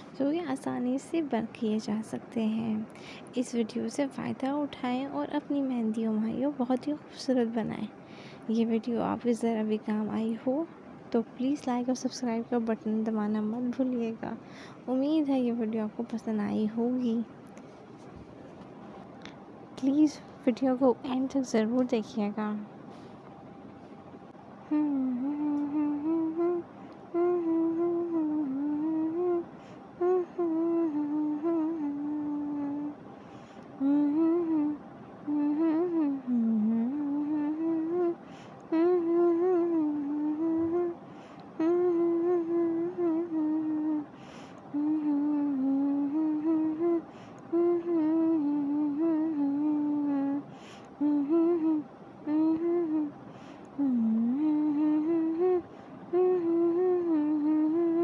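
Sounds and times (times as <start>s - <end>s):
person humming a slow melody: 24.6s - 33.0s, 33.8s - 41.0s, 41.6s - 44.1s, 44.7s - 58.0s.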